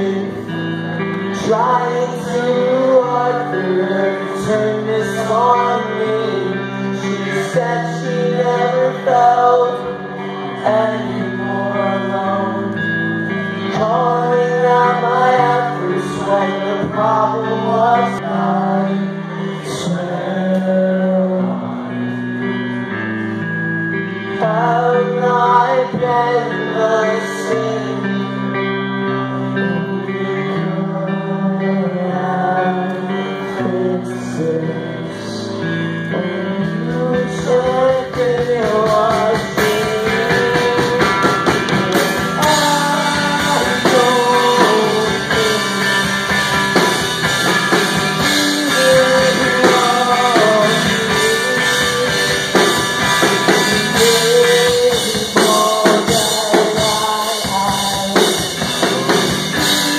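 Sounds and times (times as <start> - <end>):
guitar chords: 0.0 - 59.9
person singing: 0.0 - 59.9
drum kit with cymbals: 36.7 - 59.9.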